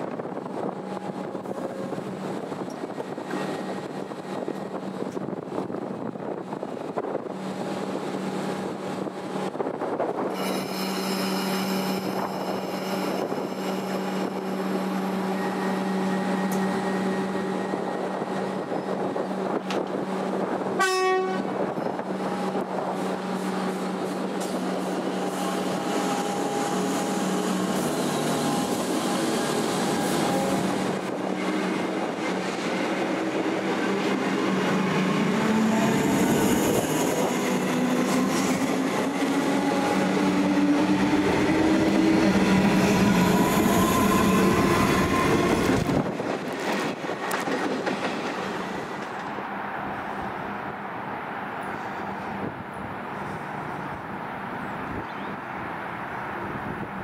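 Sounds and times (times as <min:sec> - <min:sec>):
electric train humming: 0:00.0 - 0:52.9
train horn blast: 0:20.7 - 0:21.6.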